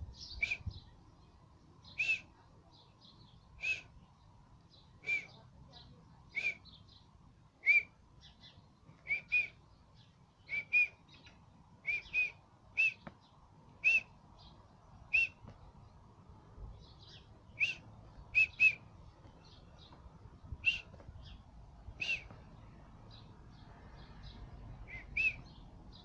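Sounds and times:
small birds chirping: 0:00.0 - 0:26.0
faint high bird calls: 0:01.8 - 0:04.1, 0:16.9 - 0:21.4, 0:22.0 - 0:26.0.

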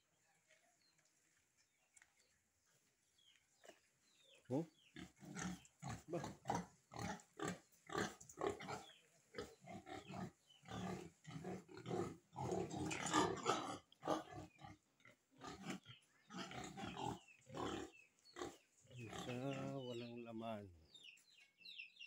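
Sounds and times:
pigs grunting: 0:04.5 - 0:20.3.

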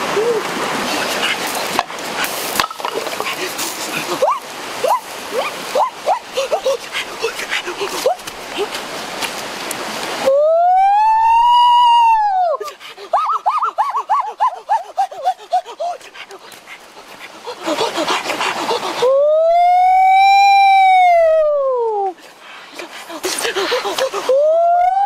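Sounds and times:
long howling calls: 0:03.3 - 0:08.2, 0:10.2 - 0:22.2.

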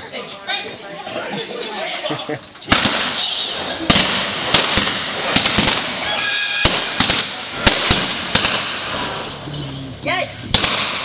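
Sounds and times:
gunshots echoing: 0:02.7 - 0:09.5, 0:10.4 - 0:11.0.

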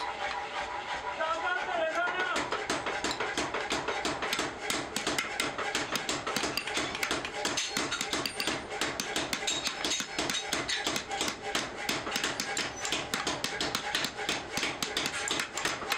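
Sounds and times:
hammer tapping on steel: 0:02.2 - 0:15.9.

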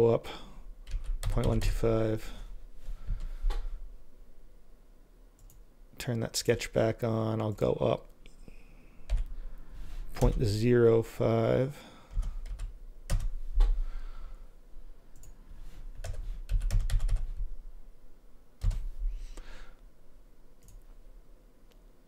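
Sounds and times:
keyboard typing: 0:00.8 - 0:01.8, 0:09.1 - 0:09.3, 0:12.1 - 0:13.8, 0:16.0 - 0:17.4, 0:18.6 - 0:18.9.

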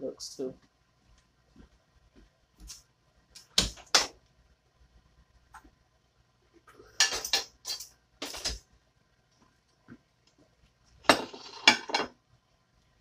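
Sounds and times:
plates and cutlery clinking: 0:06.8 - 0:08.6, 0:11.1 - 0:12.1.

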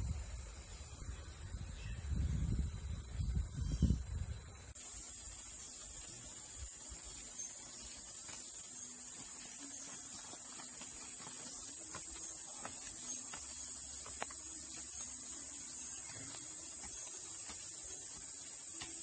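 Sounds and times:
insect chorus drone: 0:00.0 - 0:19.0
footsteps on gravel: 0:07.0 - 0:19.0.

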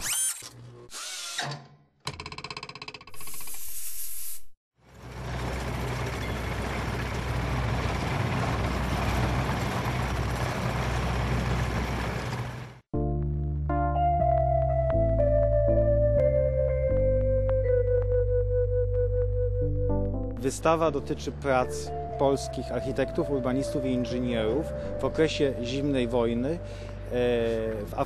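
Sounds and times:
dense noisy rumble: 0:05.0 - 0:12.8
music: 0:12.9 - 0:28.0.

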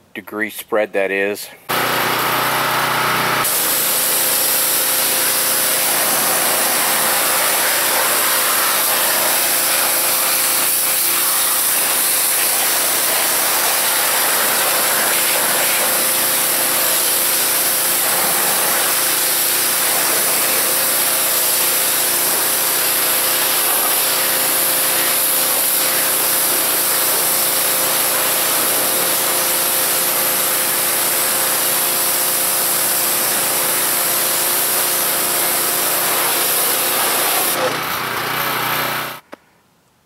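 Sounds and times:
pressure washer hum: 0:01.7 - 0:39.3
water spray hissing: 0:03.4 - 0:37.7.

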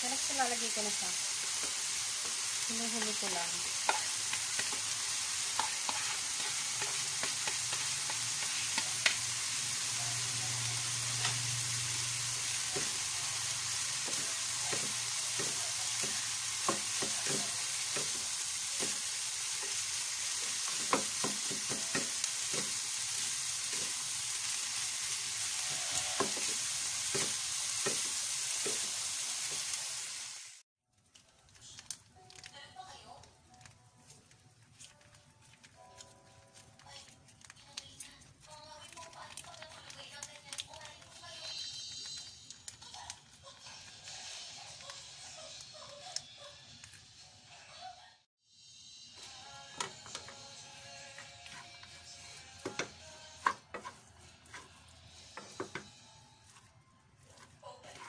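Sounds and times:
tofu and onion sizzling in a pan: 0:00.0 - 0:30.6, 0:35.7 - 0:46.2, 0:48.6 - 0:58.0
spatulas tapping and scraping a pan: 0:01.5 - 0:09.3, 0:14.0 - 0:24.0, 0:25.9 - 0:29.7, 0:51.1 - 0:58.0.

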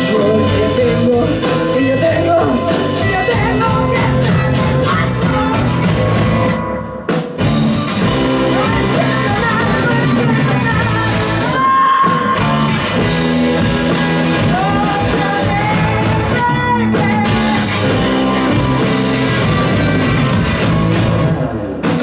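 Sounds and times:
woman singing: 0:00.0 - 0:05.8, 0:08.4 - 0:12.7, 0:14.4 - 0:18.2
blues-rock band playing live: 0:00.0 - 0:22.0.

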